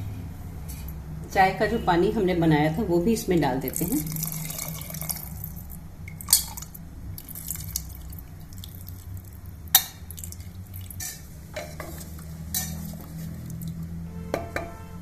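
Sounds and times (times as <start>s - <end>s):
utensils clinking on metal pot: 6.2s - 6.7s, 9.7s - 13.8s
spoon stirring in pot: 7.3s - 14.8s.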